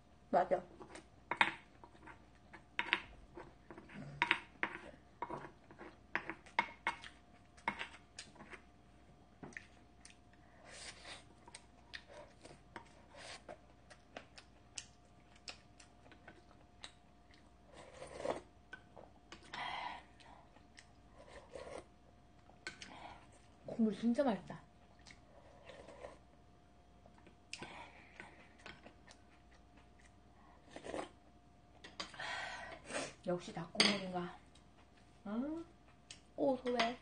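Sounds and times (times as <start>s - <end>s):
chewing: 9.4s - 23.5s, 24.8s - 26.3s, 27.0s - 31.2s.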